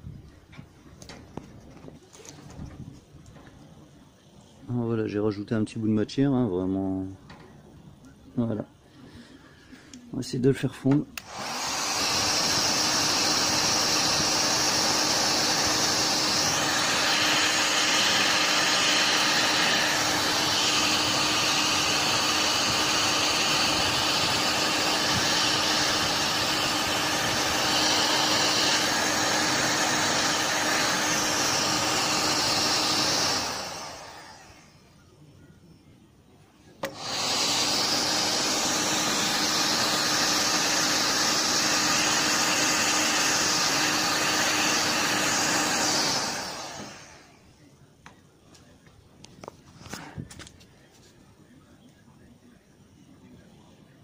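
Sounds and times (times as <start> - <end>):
heat gun blowing hot air: 11.2 - 34.8, 36.8 - 47.4.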